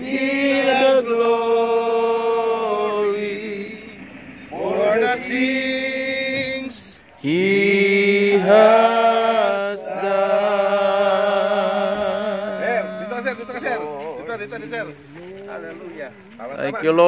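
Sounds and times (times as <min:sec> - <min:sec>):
man singing worship song: 0:00.0 - 0:15.8.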